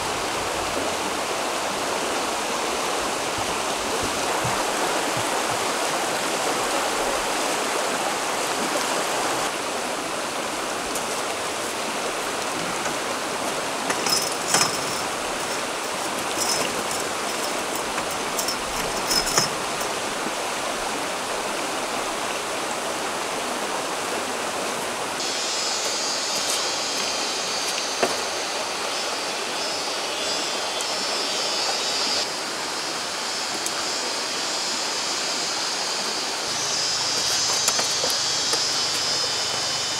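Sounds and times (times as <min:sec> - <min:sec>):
stream rushing over stones: 0:00.0 - 0:39.9
high thin buzzing: 0:25.2 - 0:39.9
sharp clicks and knocks: 0:37.1 - 0:39.0.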